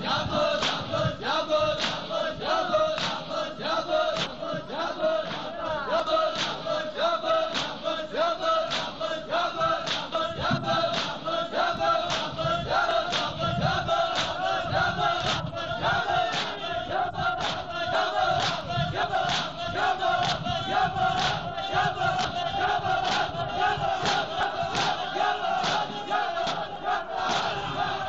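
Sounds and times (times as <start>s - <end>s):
men chanting in unison: 0.0s - 28.0s
palms slapping chests: 3.0s - 3.3s, 6.4s - 6.7s, 7.5s - 7.8s, 9.8s - 10.1s, 10.9s - 11.2s, 12.0s - 12.4s, 13.1s - 13.4s, 17.4s - 17.7s, 22.1s - 27.8s.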